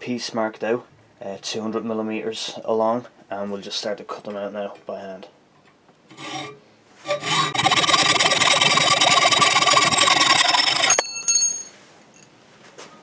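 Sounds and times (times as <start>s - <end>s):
hacksaw cutting metal rod: 6.1s - 11.2s
short metallic ring: 10.9s - 12.3s.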